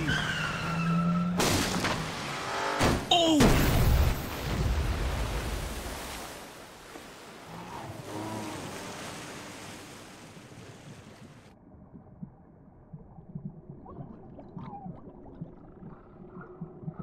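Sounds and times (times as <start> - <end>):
rushing water: 1.6 - 11.6
muffled underwater rumble: 10.4 - 17.0.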